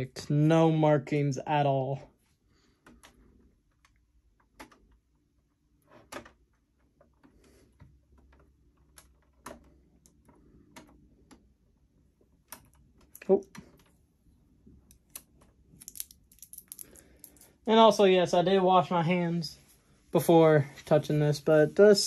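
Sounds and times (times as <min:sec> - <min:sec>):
fingers clicking and tapping plastic: 0:02.8 - 0:05.1, 0:08.0 - 0:11.6.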